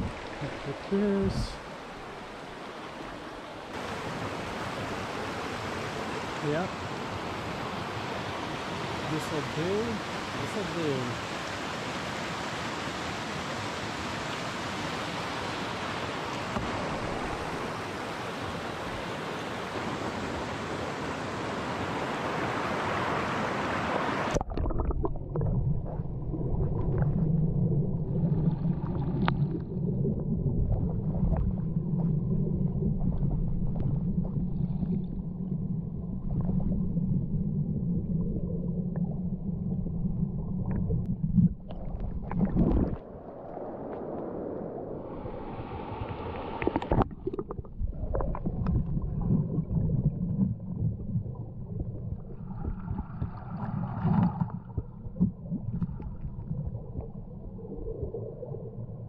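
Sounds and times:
river rushing: 0.0 - 24.4
underwater clicks and gurgles: 24.3 - 59.0
underwater current rumble: 24.3 - 59.0.

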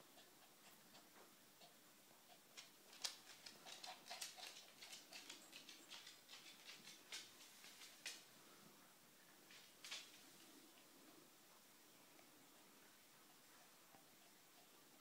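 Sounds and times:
puppy licking paw: 0.2 - 8.3.

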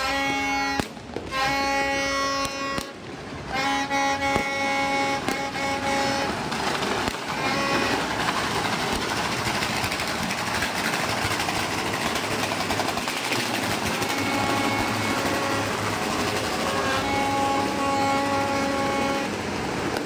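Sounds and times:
held horn-like tone: 0.0 - 8.4, 13.8 - 20.0
firecrackers popping and banging: 0.0 - 20.0.

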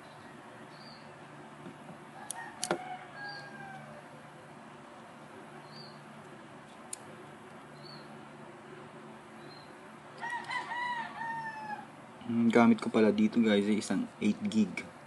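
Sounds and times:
sharp plastic clicks of card slot: 2.6 - 2.8
faint bird calling: 9.4 - 12.0.

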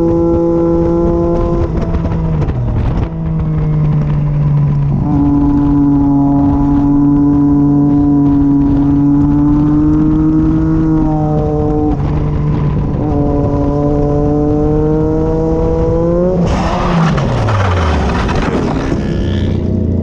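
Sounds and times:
gear change: 0.0 - 19.8
motorcycle engine revving: 0.0 - 20.0
harsh scraping noise: 16.4 - 19.8.

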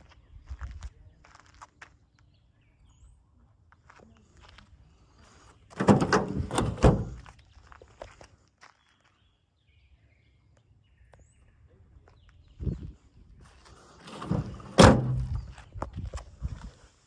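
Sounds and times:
footsteps on gravel: 0.0 - 2.3, 7.1 - 9.3
tailgate clanking and rattling: 5.8 - 7.2, 14.0 - 15.5.

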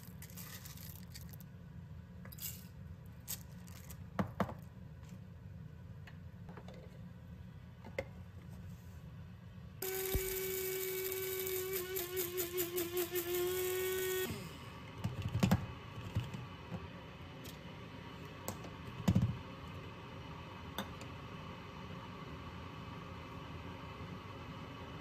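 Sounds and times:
electric coffee grinder grinding: 9.8 - 14.6.

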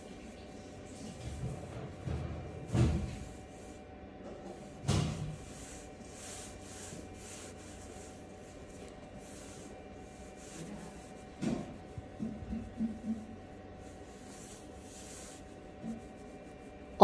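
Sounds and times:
thump: 2.1 - 3.3, 4.8 - 5.4.

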